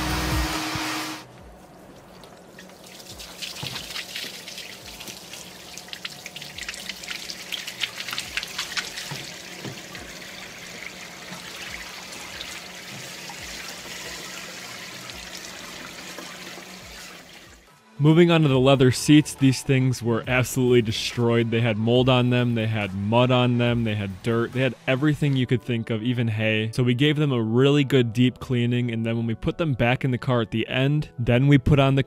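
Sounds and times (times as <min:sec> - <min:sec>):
machine noise: 0:00.0 - 0:01.3
water splashing onto drain grate: 0:01.9 - 0:17.5.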